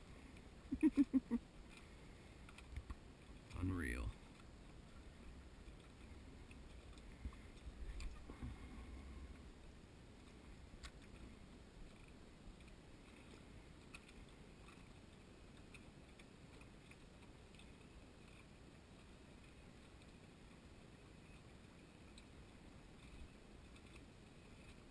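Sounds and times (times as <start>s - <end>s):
soft low rumble: 0.0s - 16.2s
faint ticks and clicks: 0.0s - 24.9s.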